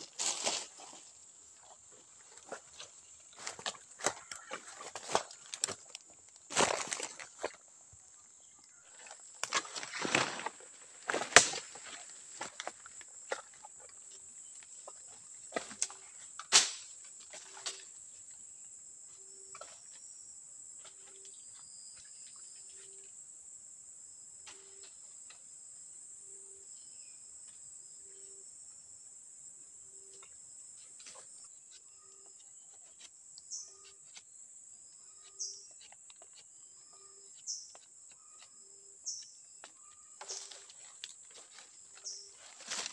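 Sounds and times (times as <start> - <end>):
insects droning: 0.0 - 42.9
twigs snapping underfoot: 3.4 - 7.6, 9.3 - 12.8, 42.4 - 42.9.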